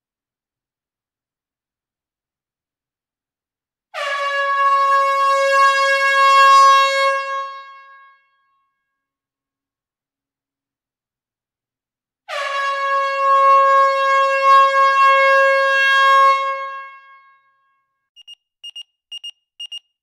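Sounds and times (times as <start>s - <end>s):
loud horn blast: 4.0s - 8.1s, 12.3s - 17.3s
electronic alarm beeping: 18.2s - 20.0s.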